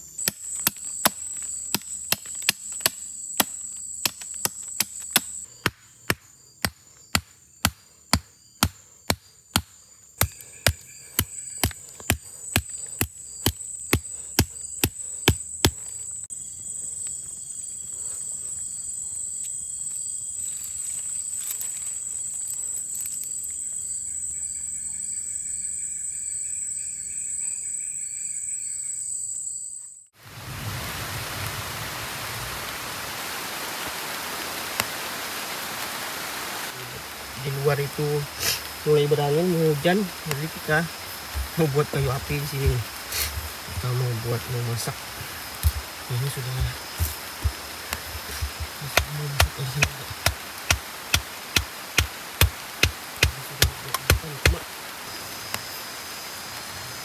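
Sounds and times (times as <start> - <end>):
low insect trill: 0.0 - 30.1, 36.8 - 57.0
high insect whine: 0.0 - 36.0, 36.6 - 57.0
steady hiss: 30.2 - 57.0.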